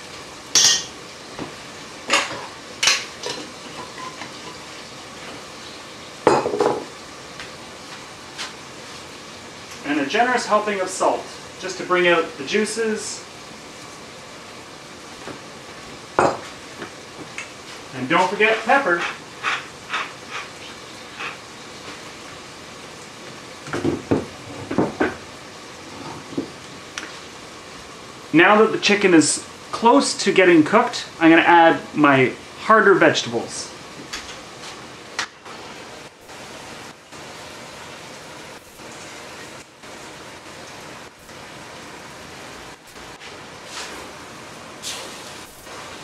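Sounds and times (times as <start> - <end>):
chicken sizzling in a pot: 0.0 - 27.4, 34.6 - 46.0
glass jars and utensils clattering: 2.1 - 4.6.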